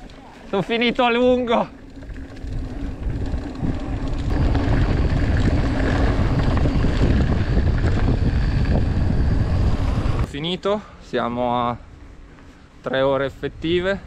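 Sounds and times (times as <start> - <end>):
bike tyre and trail noise: 0.0 - 14.0
wind buffeting microphone: 1.9 - 10.3.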